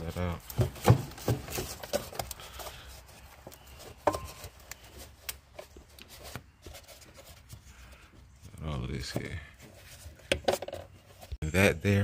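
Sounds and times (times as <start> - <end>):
clicks and knocks of engine parts: 0.4 - 2.8.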